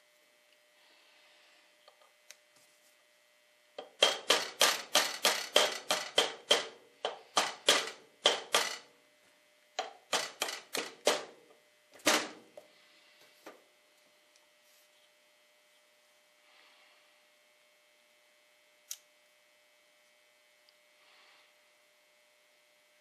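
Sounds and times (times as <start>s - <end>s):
hammer tapping metal punch: 3.8s - 8.9s, 9.8s - 11.4s.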